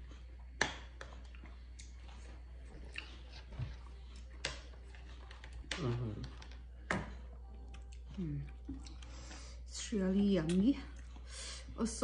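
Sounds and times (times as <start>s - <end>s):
chewing and slurping fruit: 0.0s - 6.6s.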